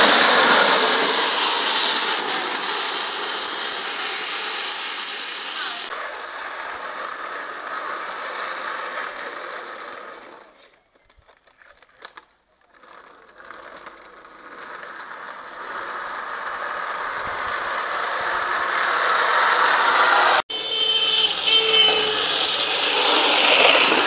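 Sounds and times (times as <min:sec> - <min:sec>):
cart wheels rattling on asphalt: 0:00.0 - 0:20.4, 0:21.0 - 0:24.0.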